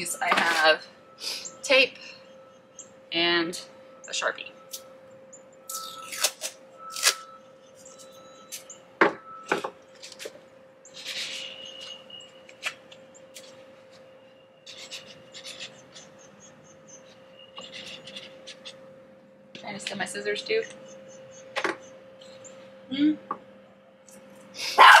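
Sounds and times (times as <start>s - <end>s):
faint steady hum: 0.0s - 25.0s
tape ripping: 5.8s - 7.2s
marker scratching: 14.7s - 16.1s, 17.6s - 18.8s.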